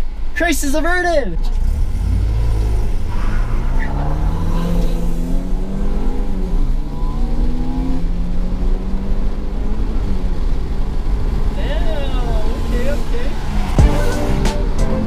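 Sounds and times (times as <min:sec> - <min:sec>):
car engine revving from inside: 0:01.5 - 0:10.0.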